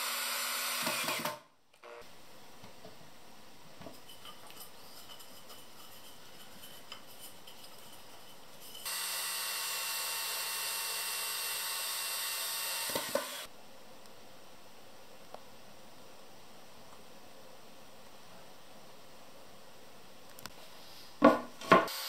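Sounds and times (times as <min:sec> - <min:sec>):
cordless drill boring into wood: 0:00.0 - 0:02.0, 0:08.8 - 0:13.5.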